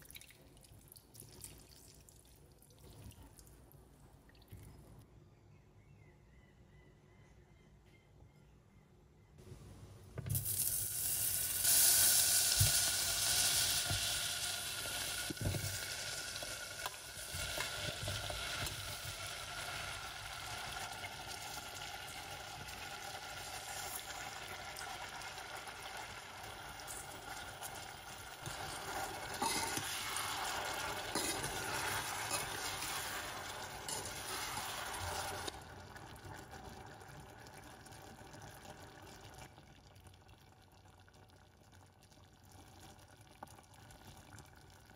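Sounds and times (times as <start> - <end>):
butter and fruit sizzling in saucepan: 10.3 - 39.3.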